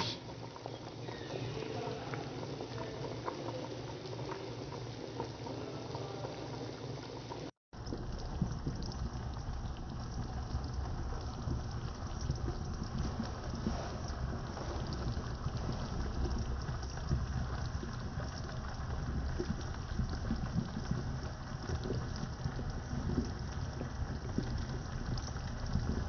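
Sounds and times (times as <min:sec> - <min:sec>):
liquid bubbling in a pot: 0:00.0 - 0:26.0.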